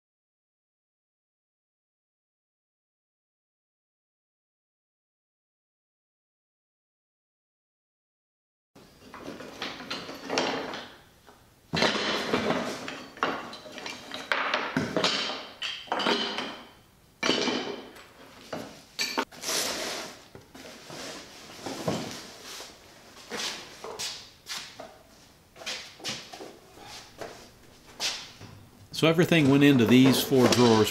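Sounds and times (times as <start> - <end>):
wooden blocks clattering: 9.1 - 11.1, 11.7 - 19.3.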